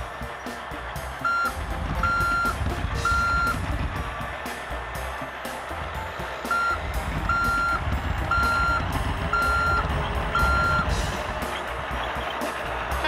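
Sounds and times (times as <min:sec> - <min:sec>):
low engine rumble: 0:00.0 - 0:13.0
reversing alarm beeping: 0:01.2 - 0:03.7, 0:06.4 - 0:12.5.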